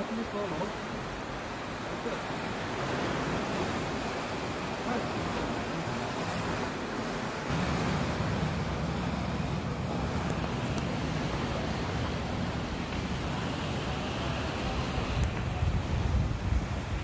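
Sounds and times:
surf washing against rocks: 0.0 - 17.0
wind on microphone: 2.5 - 17.0.

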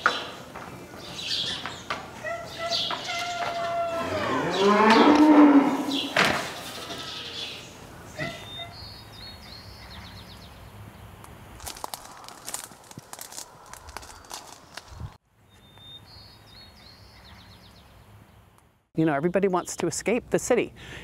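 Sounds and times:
livestock calling: 2.2 - 9.0.

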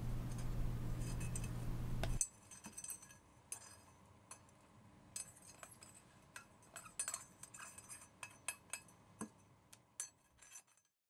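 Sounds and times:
steady low hum: 0.0 - 2.2
faint metallic clinks: 0.3 - 10.9.

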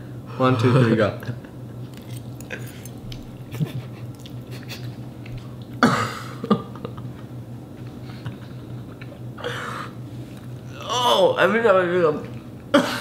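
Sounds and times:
steady low hum: 0.0 - 13.0
people chewing spaghetti: 1.9 - 5.8, 7.0 - 9.3.

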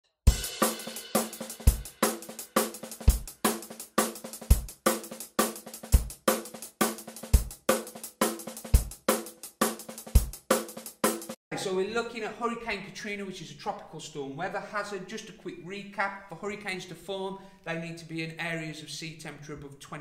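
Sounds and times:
intro music with drum beat: 0.2 - 11.4.

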